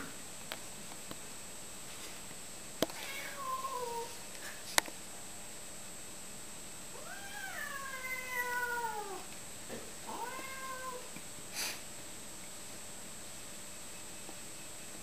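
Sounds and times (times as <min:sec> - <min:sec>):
cat meowing: 0:07.0 - 0:09.3, 0:10.1 - 0:11.1
breathy burst of noise: 0:11.5 - 0:11.9.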